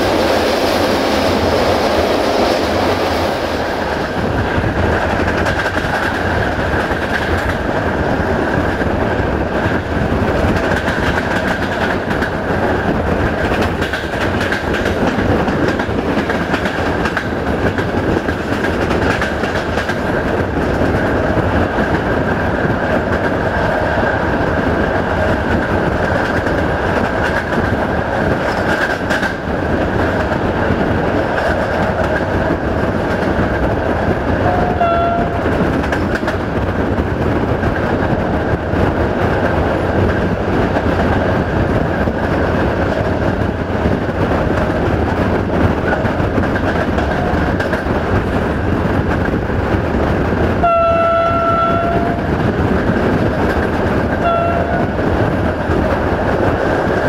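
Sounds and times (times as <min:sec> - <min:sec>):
train wheels and engine rumbling: 0:00.0 - 0:57.0
locomotive horn blasts: 0:34.4 - 0:35.4, 0:50.6 - 0:52.3, 0:54.2 - 0:54.9.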